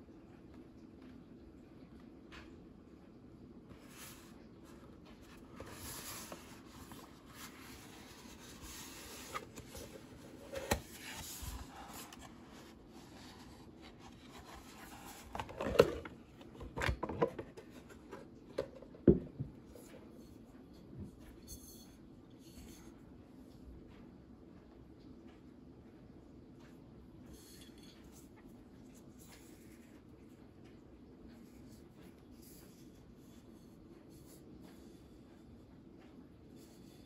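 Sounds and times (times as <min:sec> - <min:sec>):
cardboard rubbing and scraping: 0:04.0 - 0:16.1.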